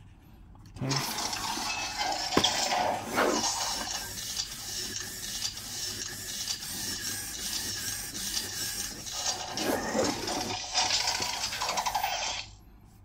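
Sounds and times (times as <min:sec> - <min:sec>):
robot servo motors whirring: 0:00.8 - 0:12.5.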